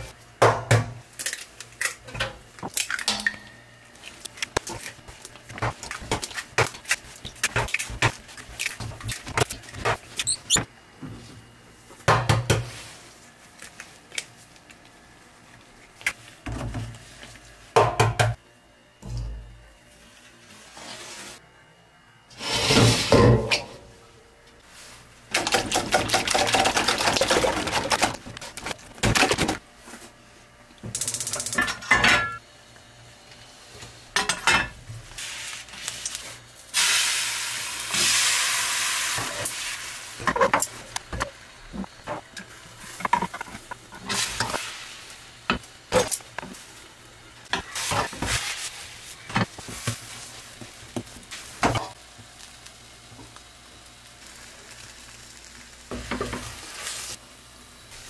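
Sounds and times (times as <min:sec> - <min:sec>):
eggs whisked in metal bowl: 0:25.4 - 0:28.3
egg sizzling in pan: 0:35.2 - 0:40.6, 0:49.5 - 0:57.2.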